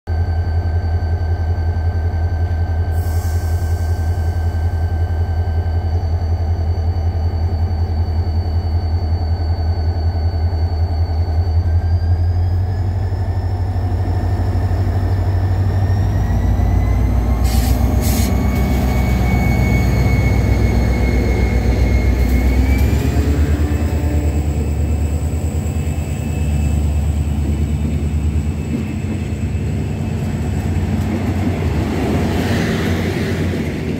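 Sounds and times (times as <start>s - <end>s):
diesel locomotive engine: 0.1s - 33.9s
passenger coaches rolling past: 12.4s - 33.9s.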